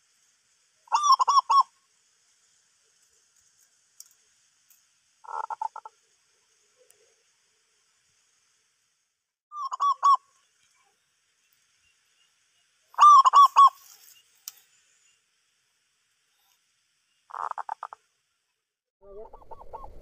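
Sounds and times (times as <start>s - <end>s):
dove cooing: 0.9s - 1.7s, 5.2s - 5.9s, 13.0s - 13.8s, 17.3s - 18.0s, 19.0s - 20.0s
faint click: 13.9s - 14.7s.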